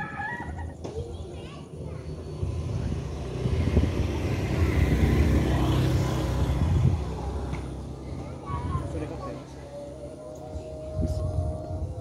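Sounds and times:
vehicle passing close by: 0:02.1 - 0:10.9.

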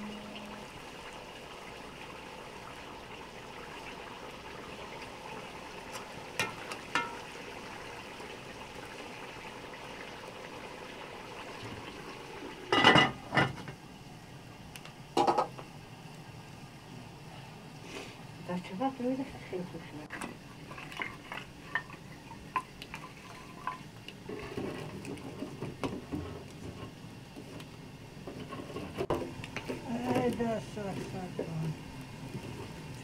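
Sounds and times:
metal pot lid clanking: 0:06.4 - 0:07.3, 0:12.7 - 0:13.6, 0:15.2 - 0:15.5.

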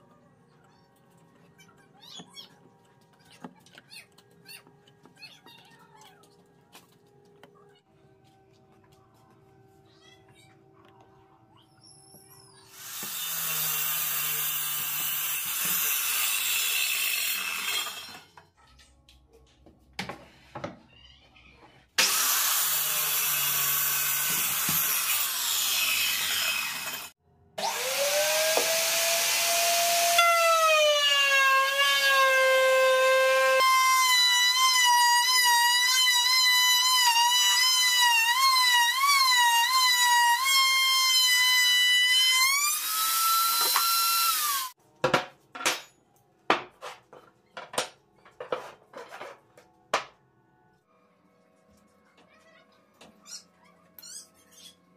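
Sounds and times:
circular saw cutting wood: 0:12.6 - 0:18.3, 0:22.0 - 0:44.8
electric router whining: 0:22.0 - 0:41.6.

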